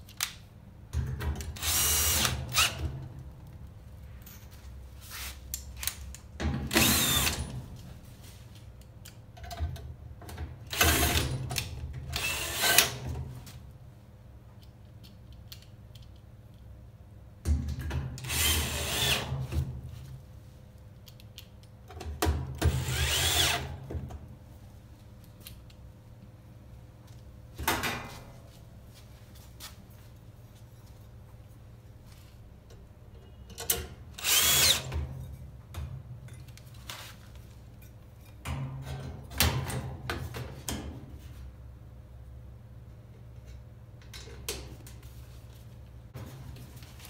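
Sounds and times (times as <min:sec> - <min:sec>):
drill driving screws into sheet metal: 0:01.4 - 0:02.9, 0:06.6 - 0:07.6, 0:10.7 - 0:13.1, 0:18.2 - 0:19.5, 0:22.6 - 0:23.9, 0:34.2 - 0:35.1.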